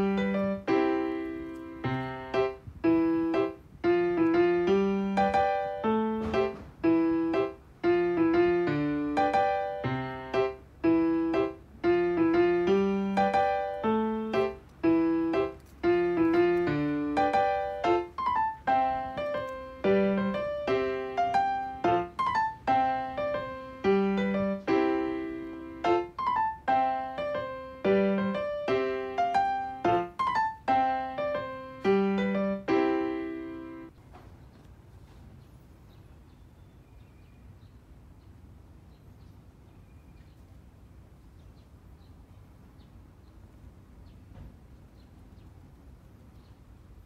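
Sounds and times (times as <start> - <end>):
piano music: 0.0 - 34.0.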